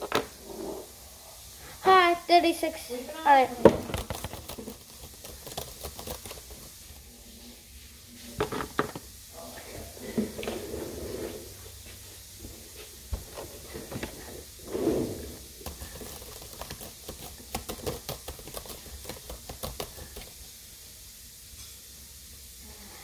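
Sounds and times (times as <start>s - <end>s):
keyboard typing: 3.8s - 6.7s, 15.6s - 20.3s.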